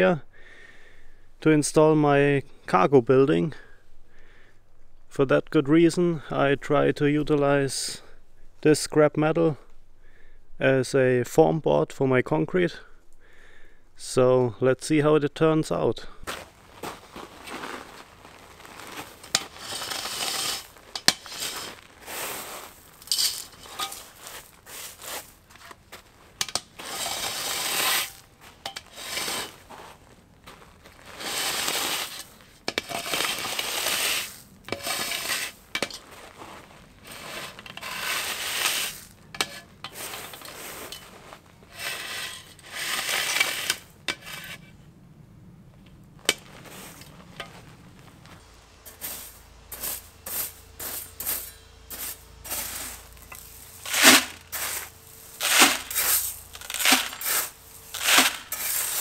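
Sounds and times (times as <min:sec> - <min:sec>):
gravel scraping and grinding: 0:16.0 - 0:44.9, 0:45.7 - 0:59.0
small stones rattling onto track: 0:18.8 - 0:25.2, 0:52.5 - 0:59.0.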